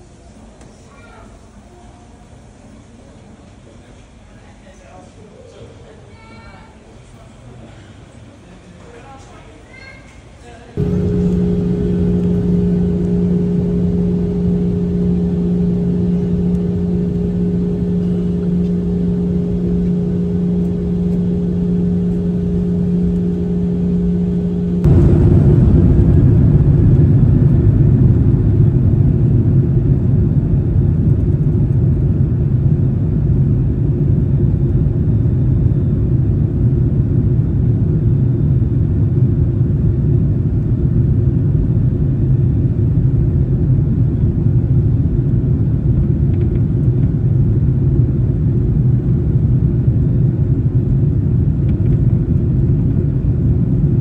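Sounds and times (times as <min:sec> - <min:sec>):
jet engines hum in cabin: 0:00.0 - 0:54.0
engine and wheels rumbling: 0:10.8 - 0:54.0.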